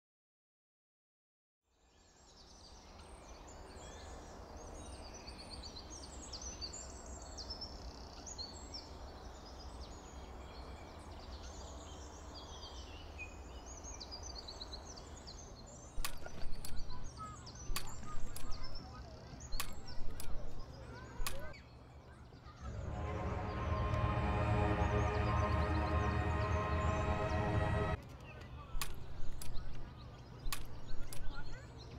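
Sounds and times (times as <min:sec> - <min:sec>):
steady low rumble: 0:22.7 - 0:28.0.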